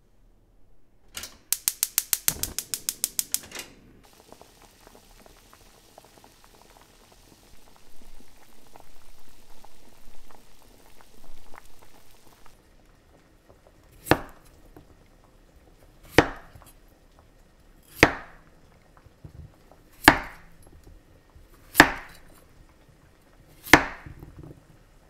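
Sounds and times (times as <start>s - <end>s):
knife chopping on cutting board: 16.1s - 16.5s, 18.0s - 18.3s, 20.0s - 20.4s, 21.7s - 22.2s, 23.6s - 24.1s.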